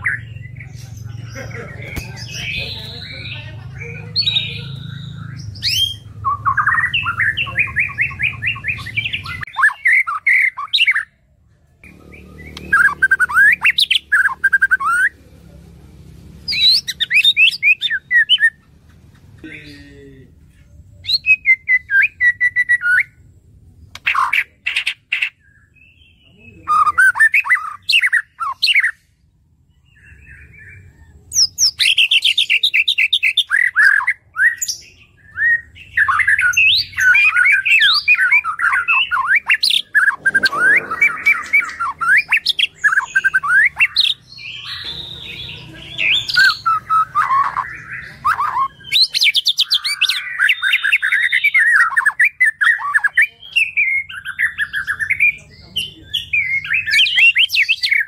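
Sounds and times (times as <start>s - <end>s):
songbird singing rapid notes: 11.8s - 15.2s.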